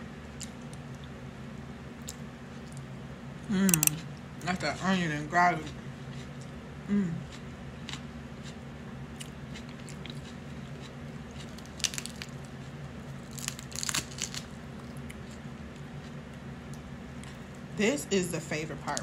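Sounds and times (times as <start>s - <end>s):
steady low hum: 0.0s - 19.0s
crab shell cracking: 3.7s - 4.0s, 11.4s - 15.4s.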